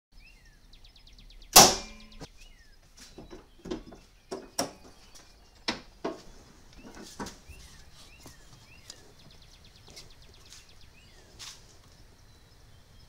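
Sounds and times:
birds chirping faintly: 0.1 - 13.0
metallic bang with ring: 1.6 - 2.3
hood latch clicks and knocks: 3.3 - 5.0.

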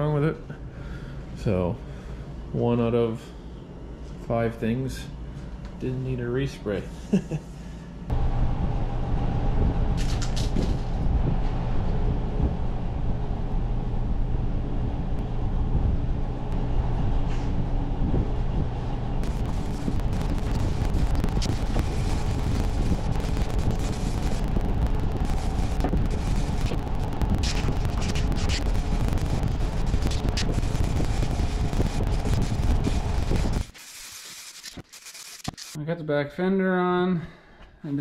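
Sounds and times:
machine droning hum: 0.0 - 38.0
crackling noise: 8.1 - 35.8.

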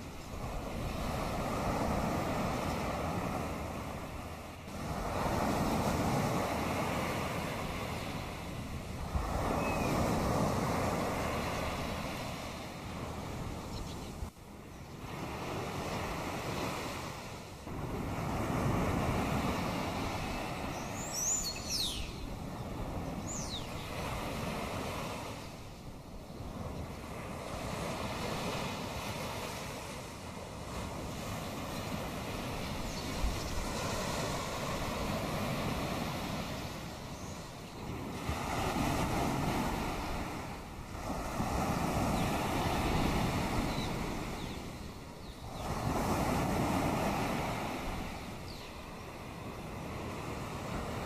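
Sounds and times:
sea waves washing ashore: 0.0 - 51.0
bird chirping: 9.6 - 10.0, 13.7 - 15.0, 20.7 - 22.4, 23.1 - 24.0.

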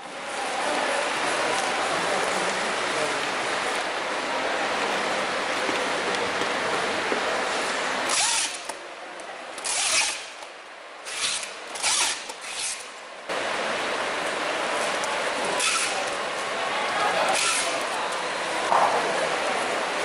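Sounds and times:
packing tape ripping off tape gun: 8.1 - 8.8, 9.6 - 10.4, 11.1 - 12.9, 17.3 - 17.9.

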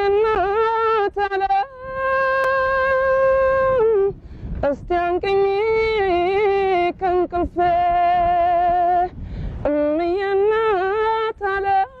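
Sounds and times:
singer breath: 4.2 - 4.6, 9.2 - 9.6.

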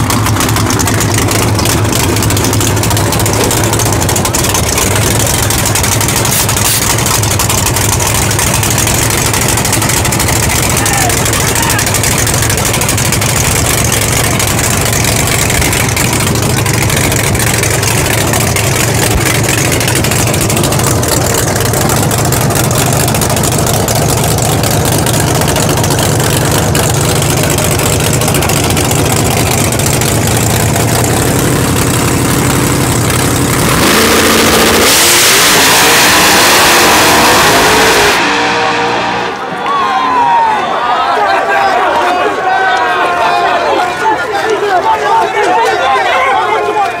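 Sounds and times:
car accelerating at full throttle: 0.0 - 40.4
drag car engine rumbling: 0.0 - 47.0.

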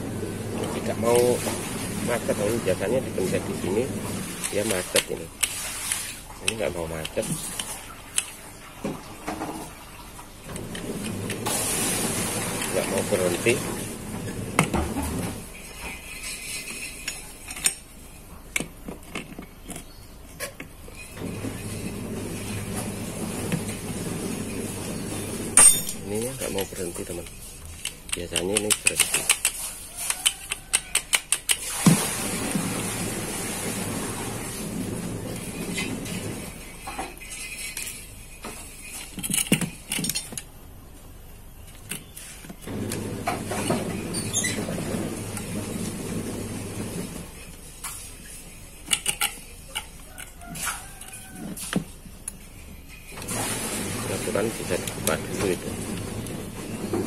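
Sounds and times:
spanner clicking on metal nut: 27.8 - 29.6, 30.2 - 31.6.

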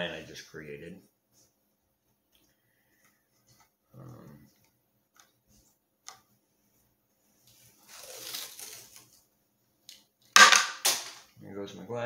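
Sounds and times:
masking tape tearing off roll: 7.4 - 9.2.

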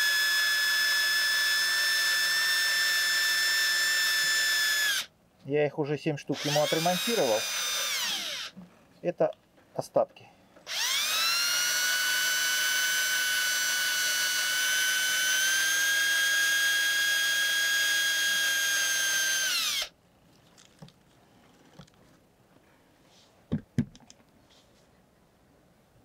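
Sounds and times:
cordless drill drilling rivets: 0.0 - 5.1, 6.4 - 8.6, 10.6 - 19.9.

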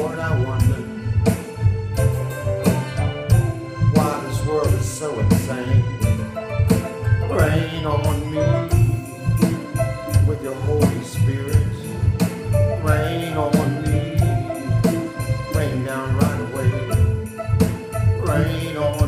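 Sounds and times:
man singing slow song: 0.0 - 1.1, 3.9 - 6.0, 7.2 - 9.0, 10.1 - 12.1, 12.7 - 17.1, 18.2 - 19.0
instrumental accompaniment with bass beat: 0.0 - 19.0.

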